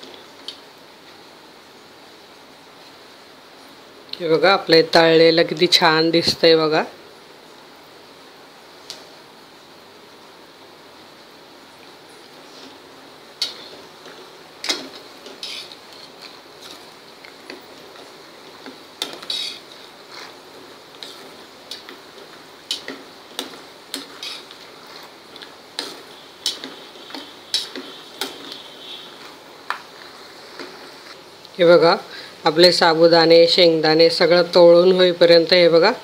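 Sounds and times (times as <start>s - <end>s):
oil sizzling: 7.3s - 34.4s.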